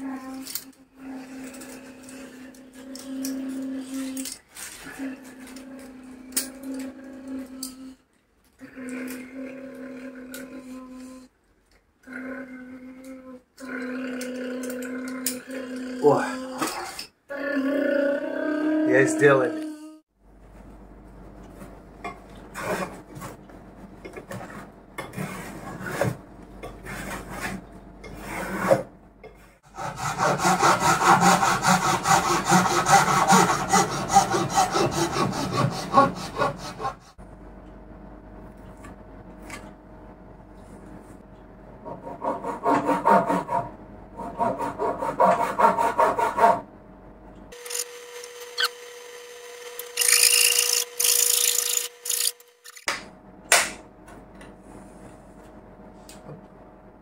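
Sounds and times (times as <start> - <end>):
hand tools shaving wood: 26.8 - 28.8, 29.6 - 37.2, 42.0 - 46.6, 47.6 - 52.9.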